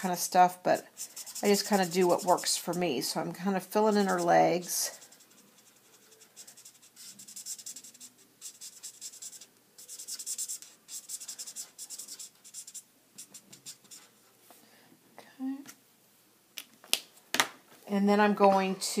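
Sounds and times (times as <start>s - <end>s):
marker scratching on paper: 0.2s - 14.3s.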